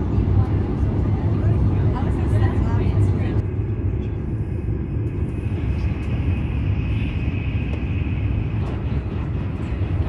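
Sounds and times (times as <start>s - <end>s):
train rumbling inside coach: 0.0s - 10.0s.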